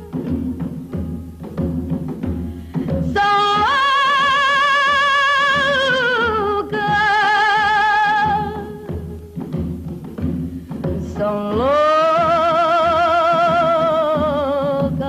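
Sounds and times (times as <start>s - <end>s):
instrumental accompaniment: 0.0s - 15.0s
woman singing long notes: 2.7s - 9.4s, 10.8s - 15.0s.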